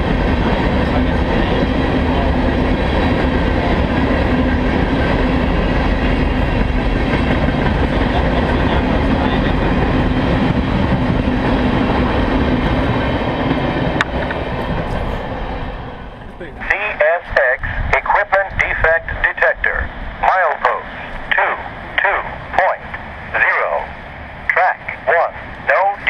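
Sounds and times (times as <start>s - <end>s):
train wheels on rails: 0.0s - 16.6s.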